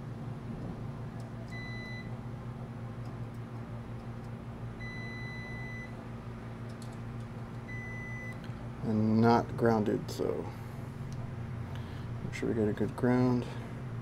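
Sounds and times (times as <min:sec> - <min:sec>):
low machinery hum: 0:00.0 - 0:14.0
multimeter beeps: 0:01.5 - 0:02.1, 0:04.8 - 0:06.0, 0:07.7 - 0:08.4.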